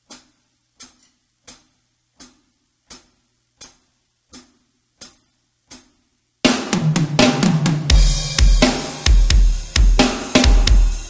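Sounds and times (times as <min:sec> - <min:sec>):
metronome clicks from headphones: 0:00.0 - 0:06.0.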